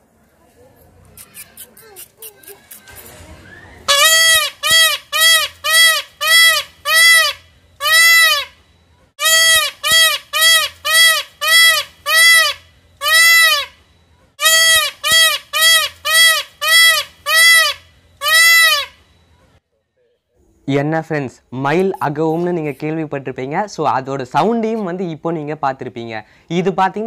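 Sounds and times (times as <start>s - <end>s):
peacock calling: 1.2s - 8.6s, 9.2s - 19.1s.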